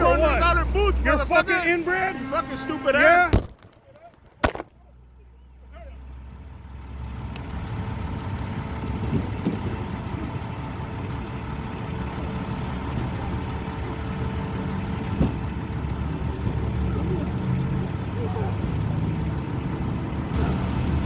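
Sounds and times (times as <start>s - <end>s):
motor vehicle running: 0.0s - 21.0s.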